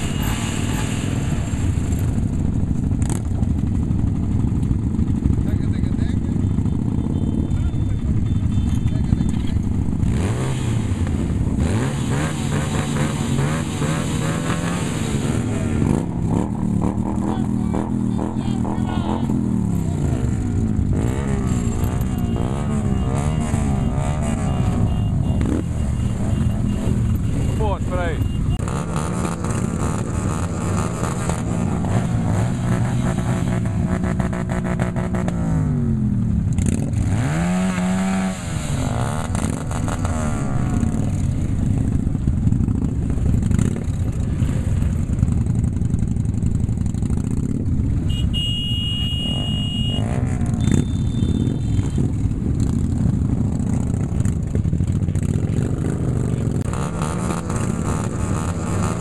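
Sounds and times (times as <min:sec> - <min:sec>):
motorcycle engines: 0:00.0 - 0:59.0.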